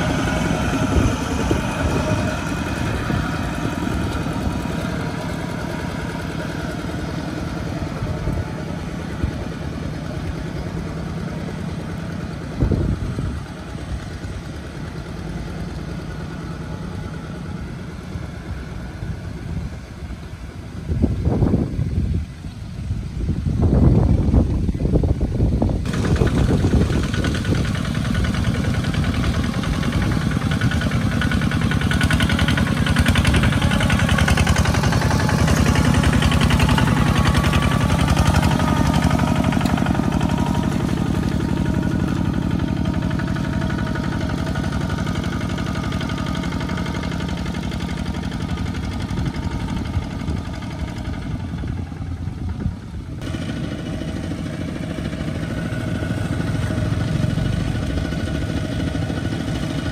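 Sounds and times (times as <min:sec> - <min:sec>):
walking tractor diesel engines chugging: 0:00.0 - 0:59.9.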